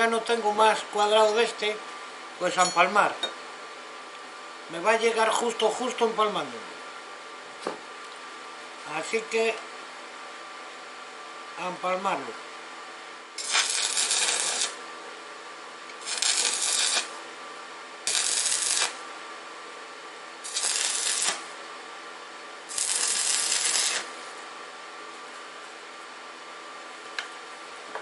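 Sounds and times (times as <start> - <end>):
steady hum: 0.0 - 28.0
arc welding crackling hiss: 13.3 - 14.9, 15.9 - 17.2, 18.0 - 19.1, 20.4 - 21.6, 22.6 - 24.4.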